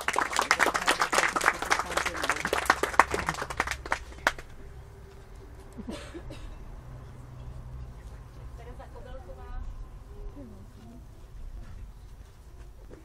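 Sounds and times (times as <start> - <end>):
audience clapping: 0.0 - 4.6.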